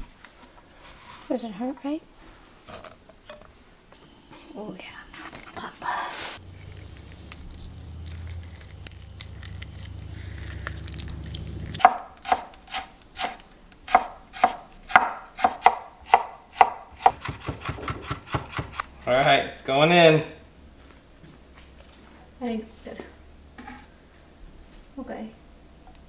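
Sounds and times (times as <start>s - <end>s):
low steady hum: 3.2s - 14.8s
knife chopping vegetables: 11.7s - 18.9s.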